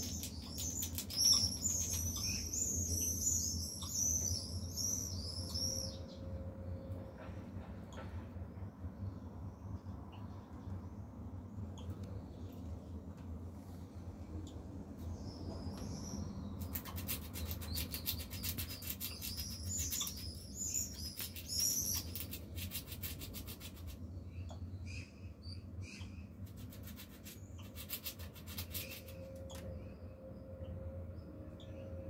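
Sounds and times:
squirrel gnawing rasping scrapes: 0.0s - 2.4s, 16.6s - 24.0s, 26.4s - 29.2s
squirrel squeaks: 0.0s - 5.9s, 16.6s - 23.9s.

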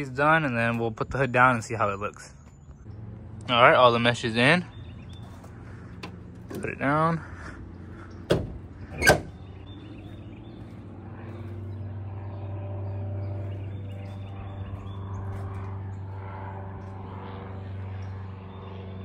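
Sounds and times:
low droning hum: 0.0s - 19.0s
car hood thumping shut: 8.3s - 9.4s.

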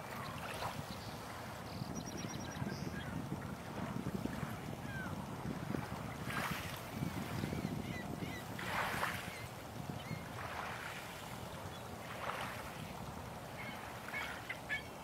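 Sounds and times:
waves lapping on pebbles: 8.4s - 14.5s.

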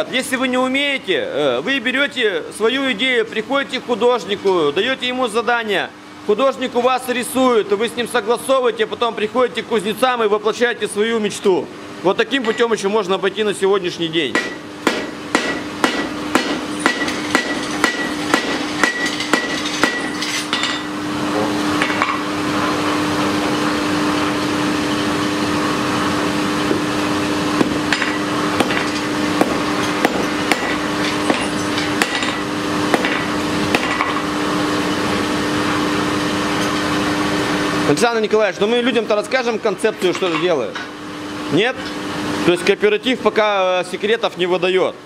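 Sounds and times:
steady mechanical hum: 0.0s - 45.0s
hammer striking iron on anvil: 14.3s - 20.9s, 27.6s - 34.3s.

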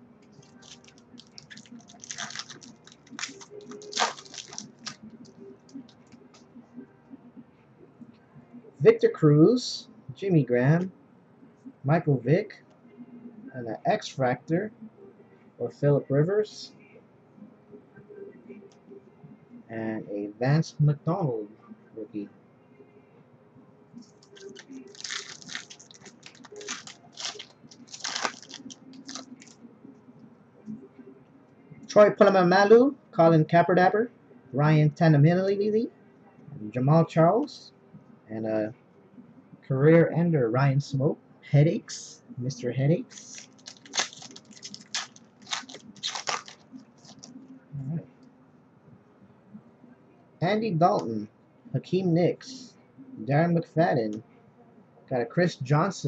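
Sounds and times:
foil wrapper crinkling and tearing: 0.4s - 5.0s, 24.3s - 29.6s, 43.1s - 47.3s.

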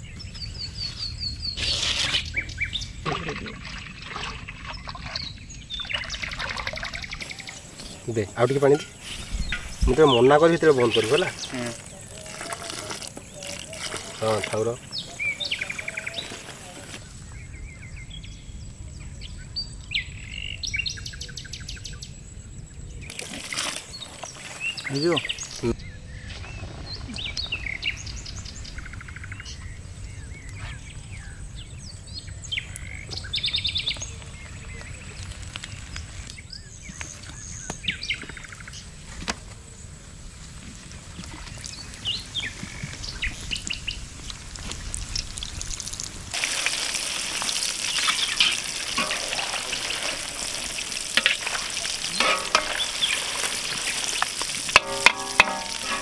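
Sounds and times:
birds chirping: 0.0s - 45.6s, 46.3s - 56.0s
batter sizzling in hot oil: 9.0s - 17.0s, 41.1s - 56.0s.

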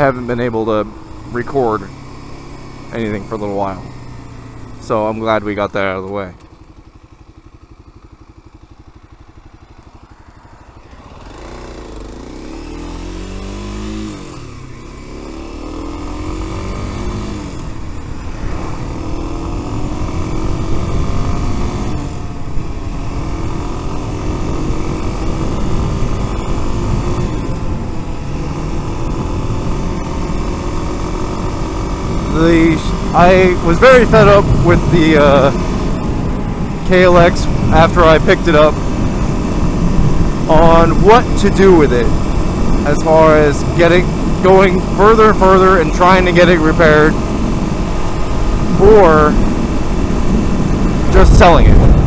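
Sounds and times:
motorcycle engine: 0.0s - 52.0s
wind rush on microphone: 32.3s - 41.1s, 47.0s - 52.0s.

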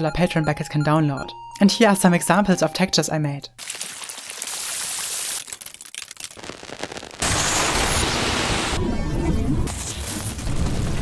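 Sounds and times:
sparse crackle of clicks: 5.4s - 7.6s
dense crackling hiss: 5.4s - 8.8s.

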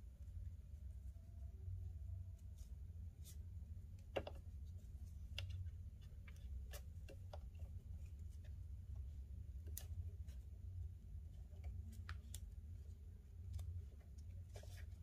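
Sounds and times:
steady low hum: 0.0s - 15.0s
cord rustling and ticking: 2.4s - 15.0s.

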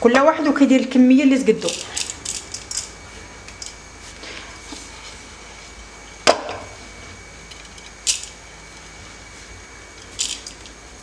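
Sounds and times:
rice grains rattling into pot: 10.0s - 10.8s.

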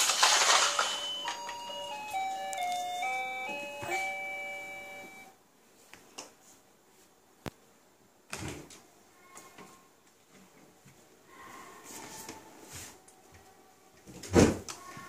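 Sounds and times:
baby toy electronic tune: 0.4s - 5.3s.

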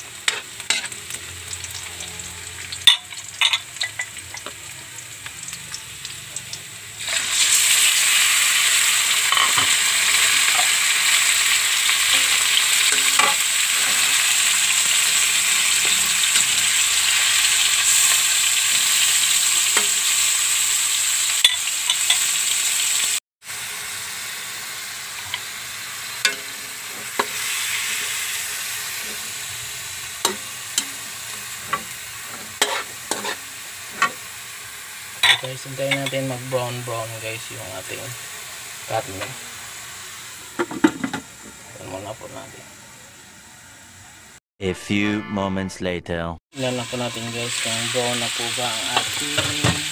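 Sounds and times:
meat sizzling in hot oil: 0.0s - 44.4s, 46.6s - 49.9s
spatula scraping a wok: 0.2s - 1.2s, 26.2s - 34.2s.

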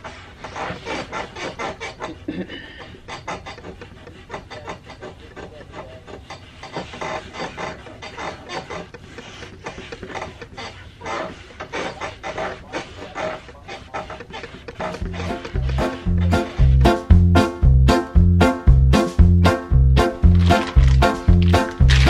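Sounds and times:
cloth wiping wooden table: 0.0s - 16.8s.

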